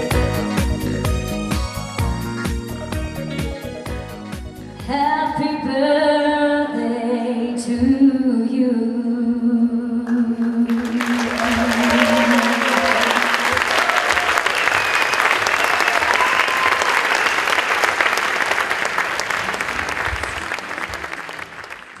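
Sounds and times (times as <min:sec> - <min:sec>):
audience applauding: 0:10.7 - 0:22.0.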